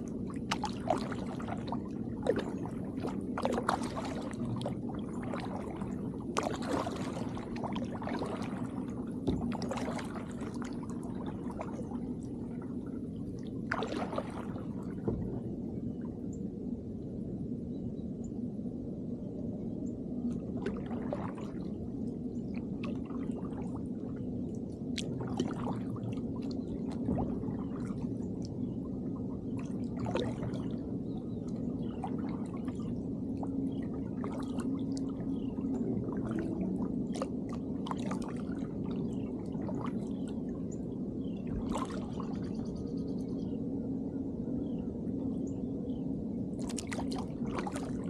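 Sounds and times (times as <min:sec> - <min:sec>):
paddle splashing water: 0:00.0 - 0:12.9, 0:13.6 - 0:15.4, 0:24.9 - 0:28.0, 0:29.5 - 0:30.8, 0:33.8 - 0:40.2, 0:41.5 - 0:42.5, 0:46.6 - 0:48.0
steady low hum: 0:00.0 - 0:48.0.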